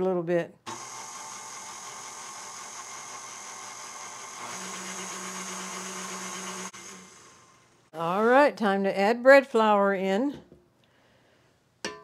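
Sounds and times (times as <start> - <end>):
stand mixer motor humming: 0.7 - 7.9.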